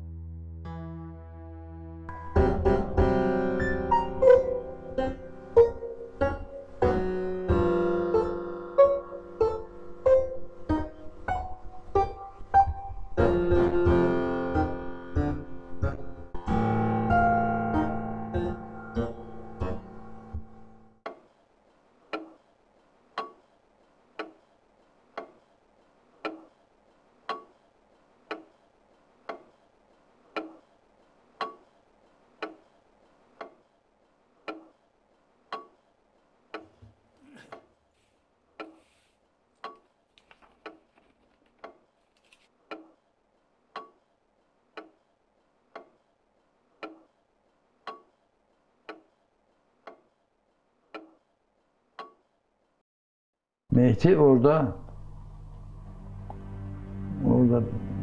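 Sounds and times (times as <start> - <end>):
clock ticking: 23.1 - 23.5, 24.1 - 25.5, 26.2 - 26.6, 27.2 - 29.6, 30.3 - 30.7, 31.3 - 33.7, 34.4 - 34.8, 35.4 - 35.9, 42.7 - 43.0, 43.7 - 44.0, 44.7 - 45.0, 45.7 - 46.0, 46.8 - 47.2, 47.8 - 48.2, 48.8 - 49.2, 49.8 - 50.1, 50.9 - 51.2, 52.0 - 52.2.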